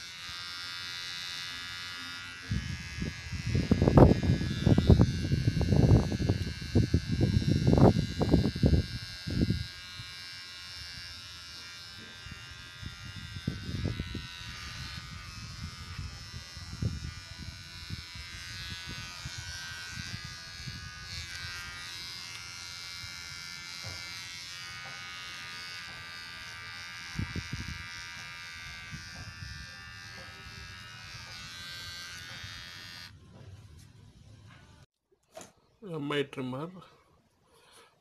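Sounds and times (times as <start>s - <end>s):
trimmer bumping against face: 0.0s - 33.5s
beard trimmer buzzing: 0.0s - 33.8s.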